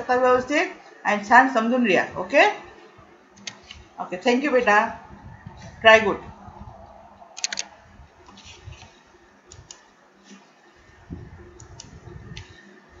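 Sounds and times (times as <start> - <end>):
faint room hiss: 0.0 - 13.0
computer mouse clicks: 3.4 - 3.8, 7.4 - 8.9, 9.5 - 10.4.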